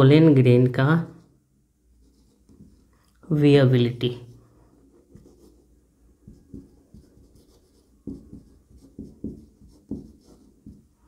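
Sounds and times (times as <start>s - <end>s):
marker writing on whiteboard: 2.0s - 3.1s, 4.1s - 11.0s.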